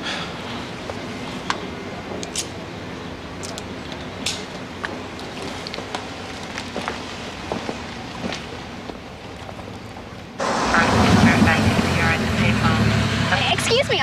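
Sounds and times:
even hiss: 10.4s - 13.5s.

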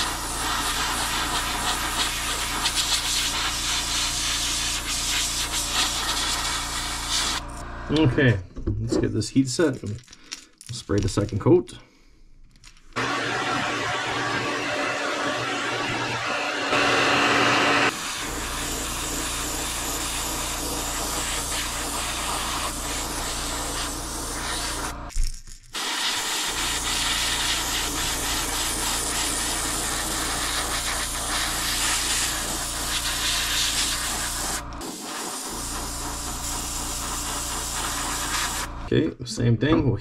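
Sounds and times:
airbrush spraying hiss: 0.0s - 7.5s, 13.0s - 25.0s, 25.8s - 38.7s
heat gun blowing: 0.0s - 7.6s, 12.9s - 25.1s, 25.8s - 38.8s.

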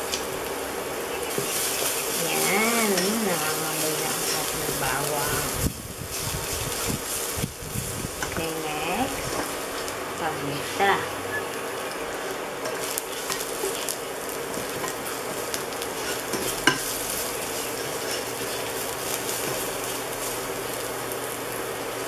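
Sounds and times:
garlic sizzling in oil: 0.0s - 22.0s
utensil scraping and tapping pot: 1.2s - 5.1s, 8.2s - 8.5s, 12.6s - 19.8s.

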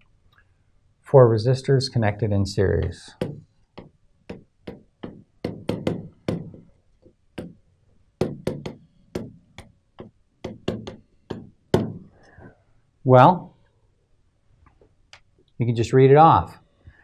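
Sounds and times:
stylus tapping on glass: 2.8s - 6.6s, 7.4s - 7.6s, 8.2s - 12.1s.

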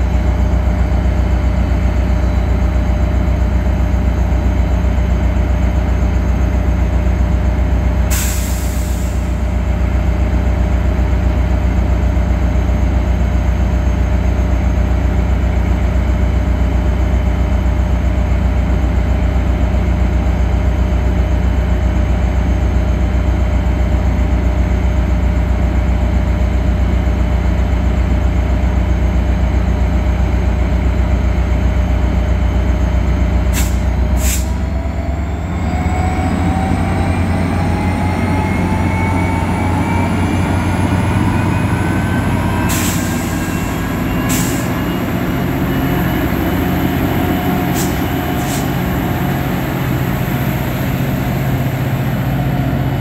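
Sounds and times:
diesel locomotive idling: 0.0s - 53.0s
air hiss: 33.6s - 34.6s.

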